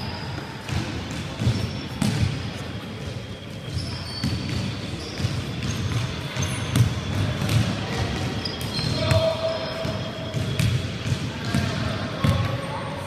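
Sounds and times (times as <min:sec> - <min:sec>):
shoes squeaking on floor: 0:00.0 - 0:07.5, 0:08.1 - 0:10.7
players' voices: 0:00.1 - 0:13.0.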